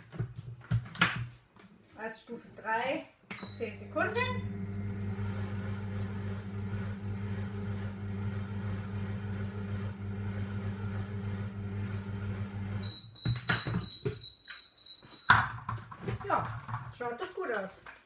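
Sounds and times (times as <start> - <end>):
food processor motor humming: 3.8 - 12.8.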